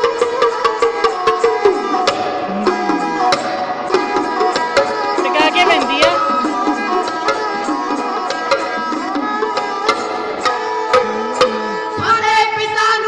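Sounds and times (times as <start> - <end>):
hand drums: 0.0 - 13.0
bowed string melody: 1.5 - 12.2
people singing: 2.5 - 7.0, 10.8 - 12.4.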